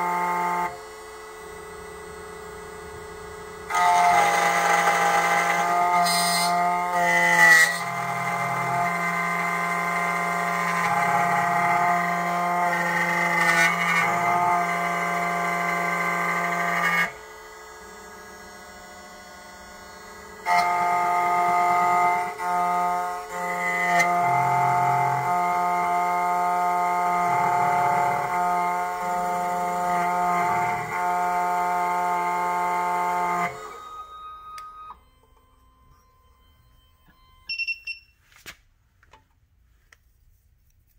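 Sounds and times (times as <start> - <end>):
key cutting machine whining: 0.0 - 37.6
low motor hum: 17.1 - 37.5.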